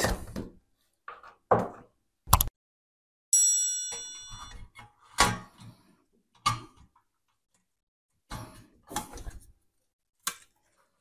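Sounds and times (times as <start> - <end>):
metallic ring: 3.4 - 4.6.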